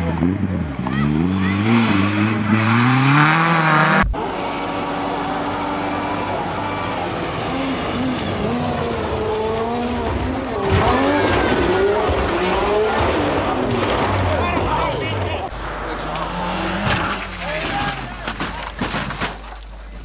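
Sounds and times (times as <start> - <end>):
rally car engines revving: 0.0 - 20.0.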